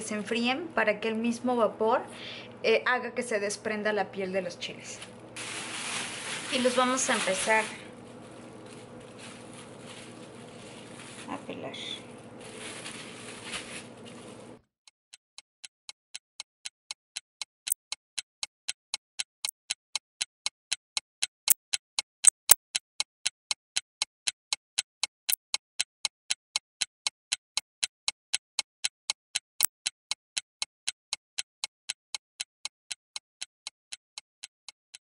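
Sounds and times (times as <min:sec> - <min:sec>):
clock-like ticking: 0:15.1 - 0:35.0.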